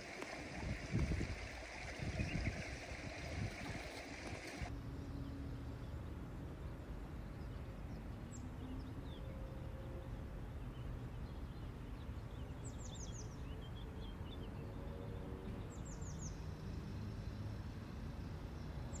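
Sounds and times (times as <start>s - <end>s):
birds chirping: 0.0s - 4.7s.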